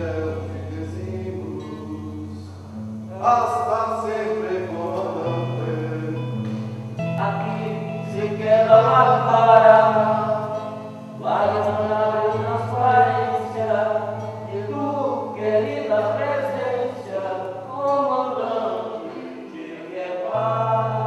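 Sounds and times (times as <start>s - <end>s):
voices singing together: 7.2s - 21.0s.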